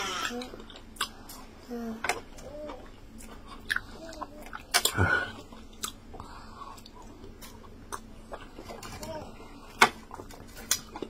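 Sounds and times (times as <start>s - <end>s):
wet chewing and mouth smacks: 2.1s - 8.9s.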